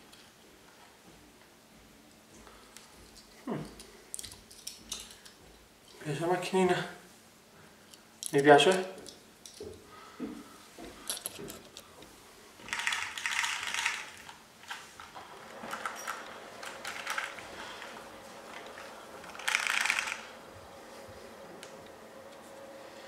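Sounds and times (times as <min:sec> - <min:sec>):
toy car motor ratcheting and whirring: 0:19.3 - 0:20.3.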